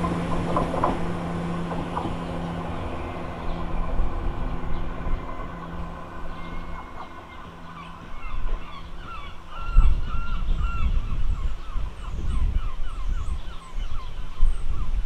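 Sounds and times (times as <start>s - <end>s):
diesel train rumble: 0.0s - 10.7s
bird honking calls: 0.0s - 14.2s.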